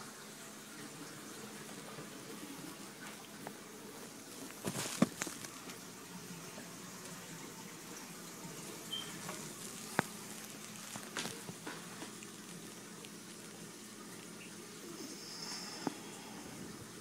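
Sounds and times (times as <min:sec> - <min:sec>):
aquarium water hiss and bubbling: 0:00.0 - 0:17.0.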